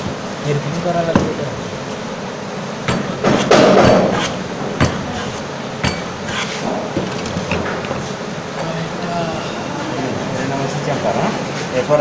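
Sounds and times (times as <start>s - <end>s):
hammer knocks: 2.9s - 4.2s.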